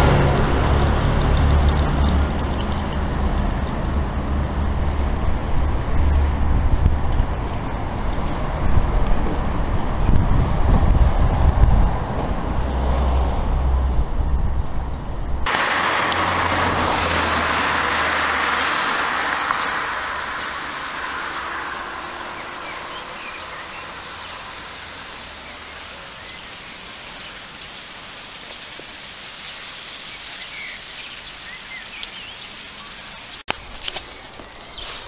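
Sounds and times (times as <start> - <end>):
hiss: 15.5 - 26.0
insect chirping: 18.0 - 33.4.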